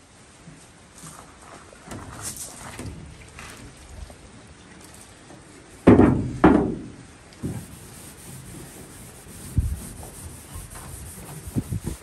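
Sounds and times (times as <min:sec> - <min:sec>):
rag rubbing on metal hull: 0:07.4 - 0:12.0.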